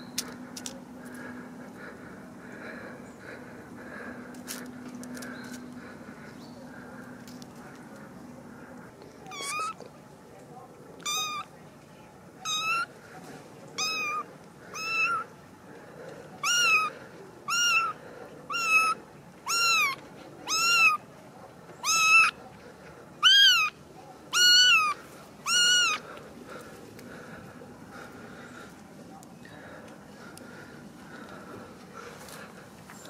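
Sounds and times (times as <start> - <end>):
kitten meowing: 9.3 - 9.8, 11.0 - 11.5, 12.4 - 12.9, 13.8 - 15.2, 16.4 - 16.9, 17.5 - 17.9, 18.5 - 21.0, 21.8 - 22.4, 23.2 - 26.0.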